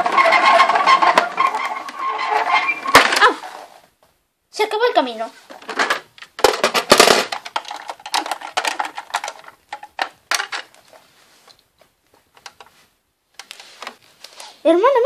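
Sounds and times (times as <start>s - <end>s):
plastic toys clattering: 0.0s - 3.8s, 5.5s - 11.1s, 12.3s - 12.8s.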